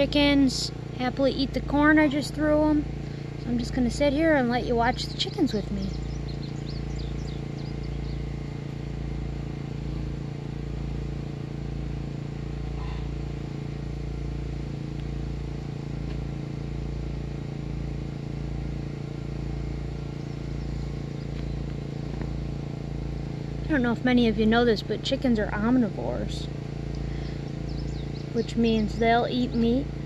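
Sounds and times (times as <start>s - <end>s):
steady low hum: 0.0s - 30.0s
faint bird chirps: 4.6s - 8.6s, 12.6s - 13.2s, 27.1s - 29.8s.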